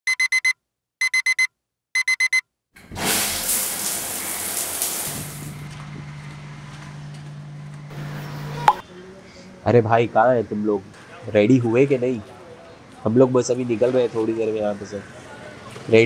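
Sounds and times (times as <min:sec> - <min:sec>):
electronic alarm beeping: 0:00.1 - 0:02.4
loud hiss: 0:03.0 - 0:05.5.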